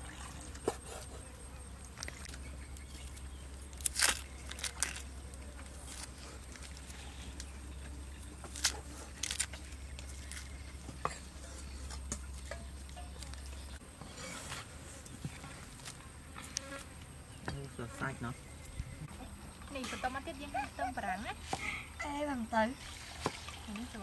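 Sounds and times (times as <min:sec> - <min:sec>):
onion skin crackling and tearing: 0:01.9 - 0:10.7.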